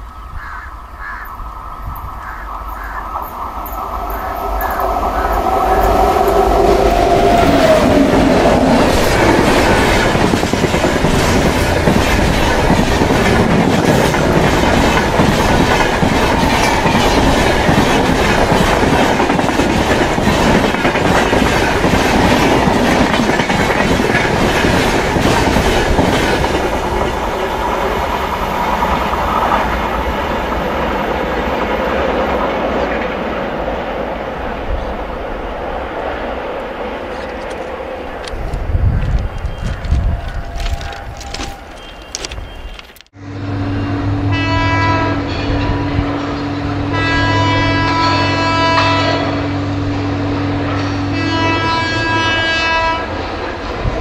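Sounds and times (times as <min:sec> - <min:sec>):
locomotive whine: 0:00.0 - 0:54.0
train wheels clickety-clack: 0:02.0 - 0:33.4, 0:37.1 - 0:43.1.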